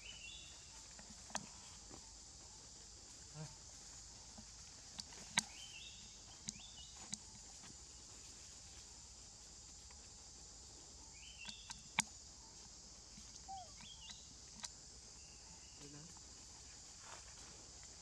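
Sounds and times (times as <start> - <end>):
insects droning in trees: 0.0 - 18.0
short stepped chirping calls: 13.2 - 14.6.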